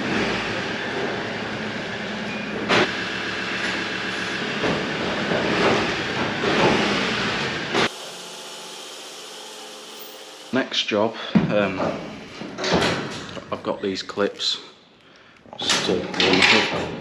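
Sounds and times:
trailer rumbling and rattling: 0.0s - 7.8s
truck engine running: 0.0s - 7.8s.

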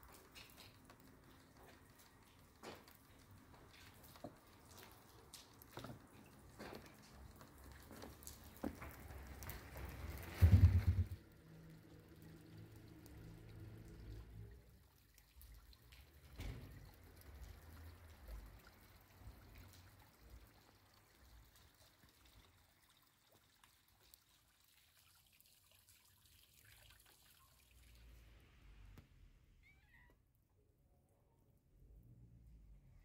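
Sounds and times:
water trickling: 0.0s - 29.0s
low rumble: 10.4s - 11.2s.

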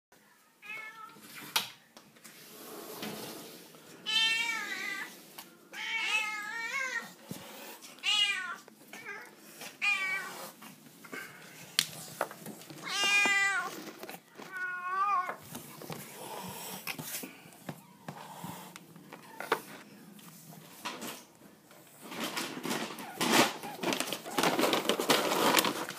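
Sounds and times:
cats meowing: 4.0s - 7.2s, 7.9s - 10.6s, 12.7s - 15.9s.

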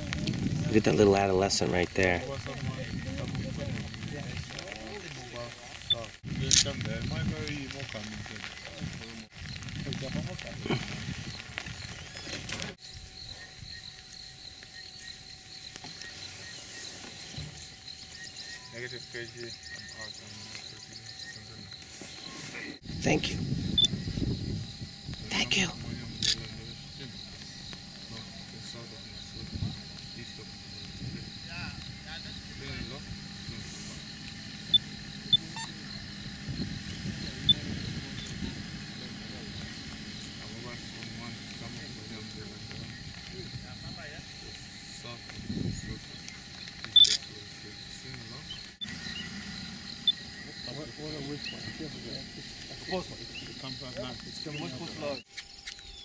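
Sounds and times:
insect chirping: 0.0s - 56.0s
steady high hiss: 3.8s - 55.4s
short high-pitched peeps: 34.7s - 35.8s, 46.9s - 47.2s.

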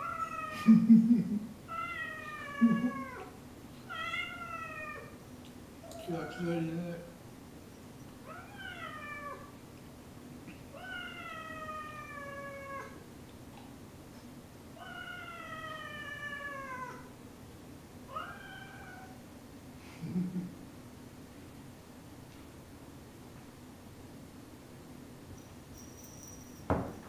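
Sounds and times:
cat meowing: 8.3s - 9.5s, 18.1s - 19.2s.

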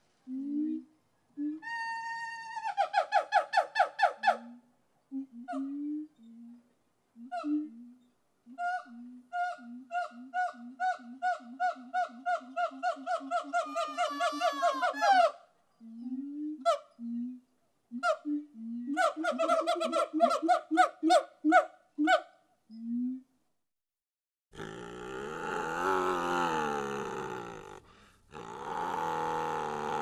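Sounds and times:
low hooting animal call: 8.6s - 15.4s, 24.6s - 30.0s.

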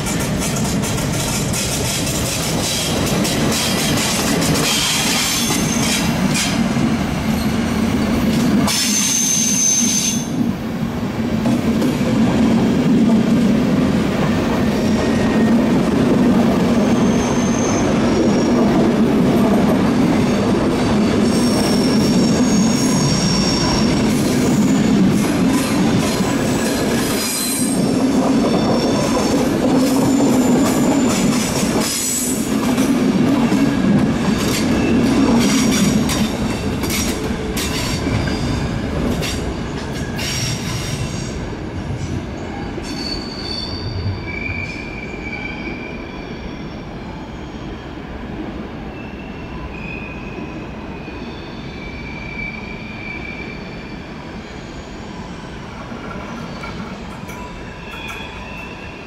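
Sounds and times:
train wheels clicking over joints: 0.0s - 6.7s, 24.2s - 38.3s, 38.9s - 41.2s
high flange squeals: 8.7s - 10.4s, 16.8s - 18.6s, 21.0s - 25.0s, 42.5s - 48.0s, 48.9s - 59.0s.

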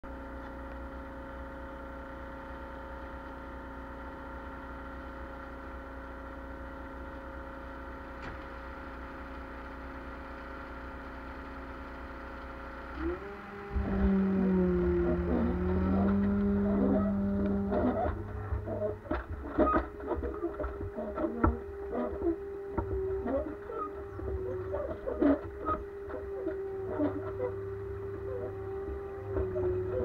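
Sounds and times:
diesel engine idling: 11.4s - 30.0s.

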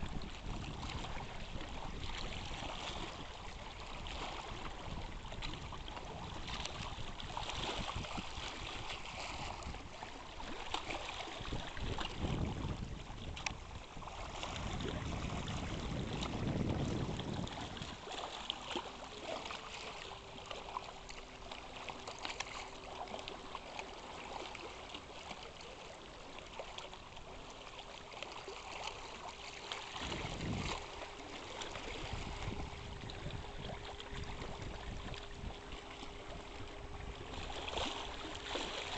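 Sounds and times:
lake water lapping at shore: 0.0s - 38.9s
wind gusting on microphone: 11.5s - 18.0s, 30.0s - 30.9s, 31.9s - 37.3s
faint steady hum: 19.0s - 38.9s.

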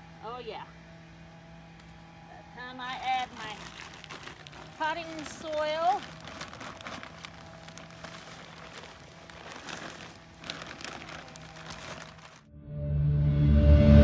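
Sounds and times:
plastic bag crinkling: 2.9s - 12.5s
soil pouring: 3.6s - 12.5s.

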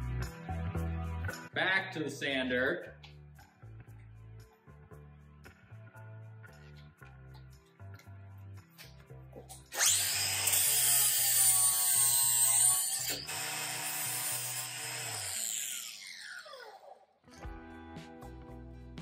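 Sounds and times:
background music: 0.0s - 13.2s, 17.3s - 19.0s
angle grinder sanding wood: 9.8s - 16.5s.

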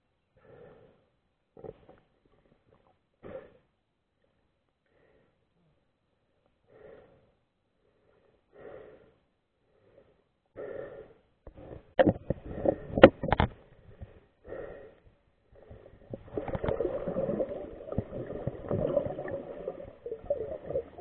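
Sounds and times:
muffled underwater swishing: 15.7s - 21.0s.

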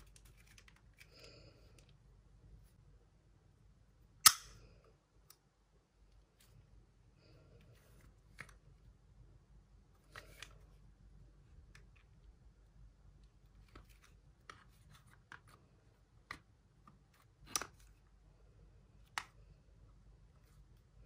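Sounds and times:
soft clicks of plastic and metal: 0.0s - 2.0s, 7.8s - 8.8s, 18.9s - 19.6s.

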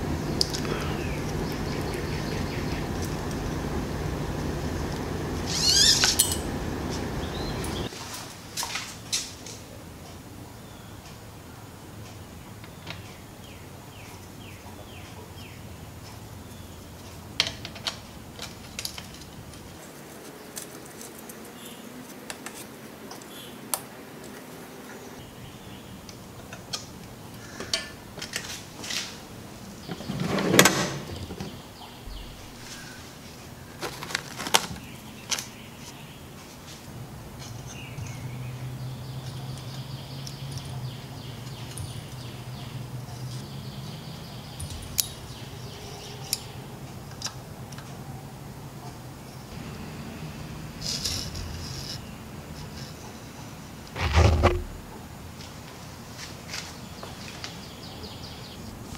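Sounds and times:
steady low hum: 0.0s - 7.9s
toolbox drawer sliding open: 29.9s - 31.6s, 54.0s - 54.9s.

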